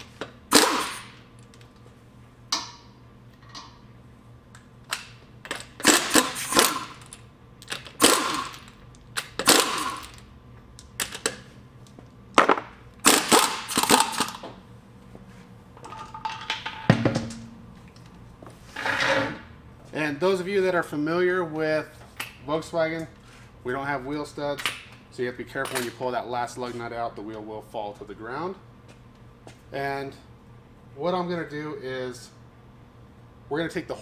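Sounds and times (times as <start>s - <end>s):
impact wrench hammering: 0.5s - 1.2s, 5.5s - 10.1s, 12.4s - 14.5s.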